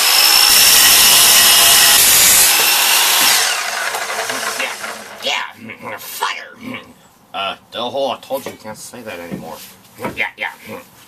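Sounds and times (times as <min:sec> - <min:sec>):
miter saw cutting steel: 0:00.0 - 0:05.3
saw blade spinning down: 0:00.0 - 0:05.3.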